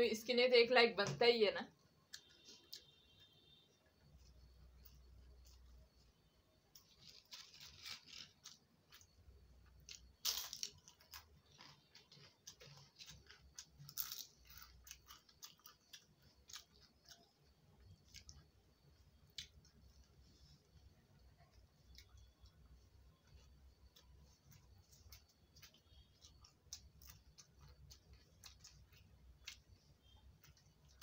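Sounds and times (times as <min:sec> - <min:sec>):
soft crackles of mixing rice: 0:01.6 - 0:31.0
chewing: 0:10.9 - 0:18.6, 0:23.2 - 0:31.0.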